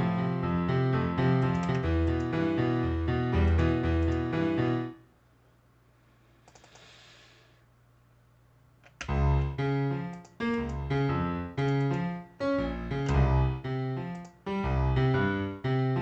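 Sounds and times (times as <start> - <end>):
piano playing minor chords: 0.0 - 5.1, 9.0 - 16.0.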